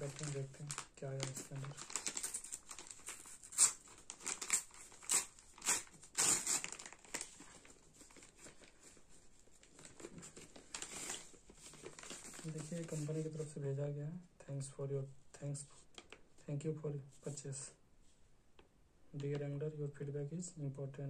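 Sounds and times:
paper envelope tearing: 0.0 - 8.7
paper crinkling and rustling: 0.0 - 13.5.

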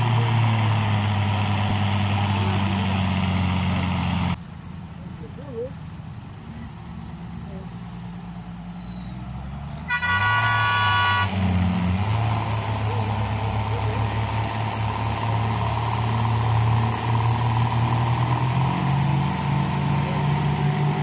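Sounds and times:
heavy truck engine running: 0.0 - 21.0
truck horn: 9.8 - 11.7.

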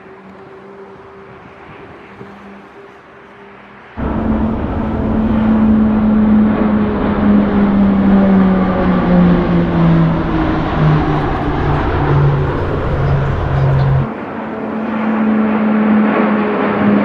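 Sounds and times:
propeller aircraft flying past: 3.5 - 17.0
higher-pitched hum: 4.0 - 15.5.

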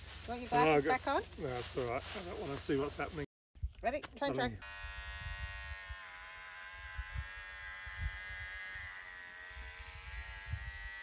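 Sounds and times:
electric hair clippers buzzing: 4.6 - 11.0.

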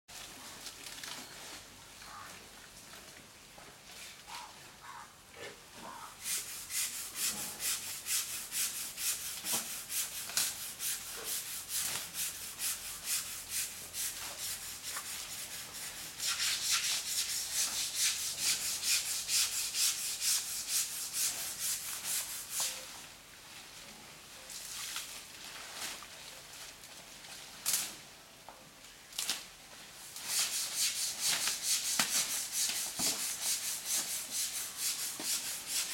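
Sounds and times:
hand scrubbing wet hide: 5.9 - 22.9, 30.0 - 35.9.

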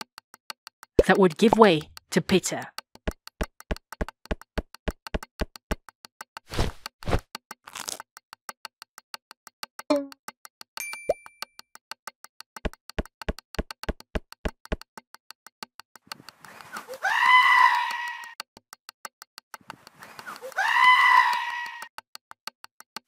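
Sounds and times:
fast steady ticking: 0.0 - 5.9
sheep bleating: 16.9 - 18.4, 20.4 - 21.9.

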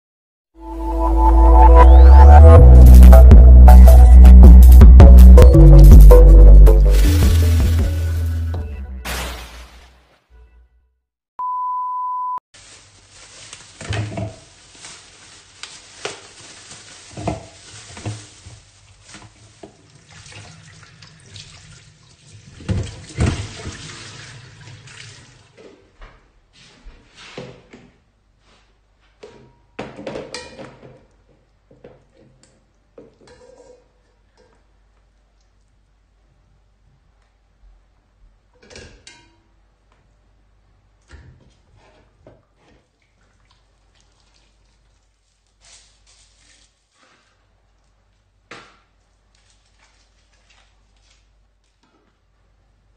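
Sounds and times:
water splashing: 9.0 - 10.1, 14.5 - 25.6
electronic beep: 11.4 - 12.4.

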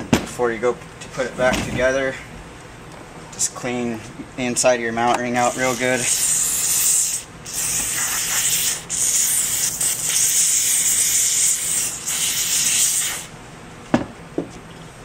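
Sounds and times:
aerosol spray hissing: 5.4 - 13.3.

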